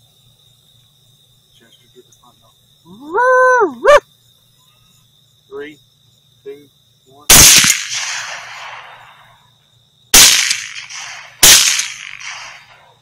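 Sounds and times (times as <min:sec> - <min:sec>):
rifle shots echoing: 0:07.3 - 0:09.4, 0:10.2 - 0:13.0.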